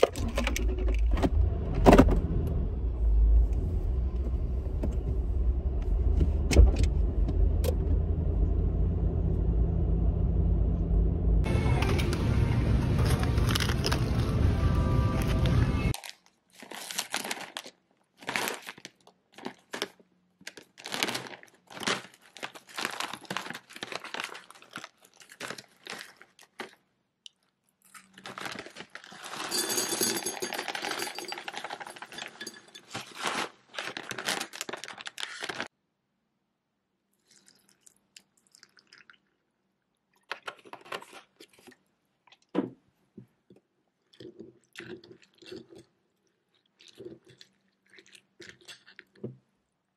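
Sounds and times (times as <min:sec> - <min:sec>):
plastic bag crinkling: 0:15.9 - 0:26.8, 0:27.8 - 0:35.7.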